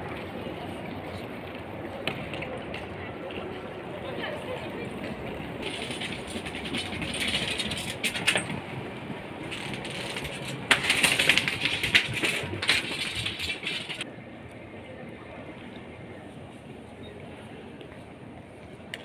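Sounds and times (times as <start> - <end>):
suitcase wheels rattling on floor: 5.6 - 8.8, 9.4 - 14.1.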